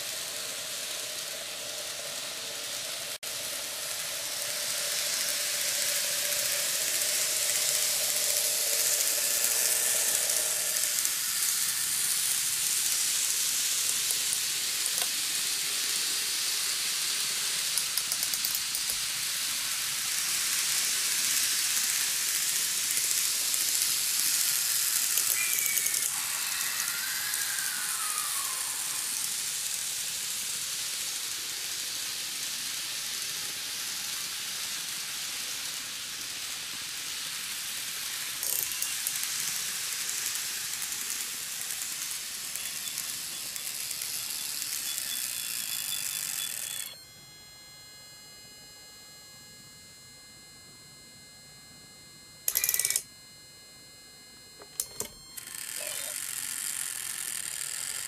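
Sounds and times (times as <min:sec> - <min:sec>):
model train wheels and motor whirring: 0:00.0 - 0:47.0, 0:52.4 - 0:53.1, 0:54.6 - 0:58.0
faint steady whine: 0:00.0 - 0:58.0
faint rising and falling tone: 0:25.2 - 0:29.5.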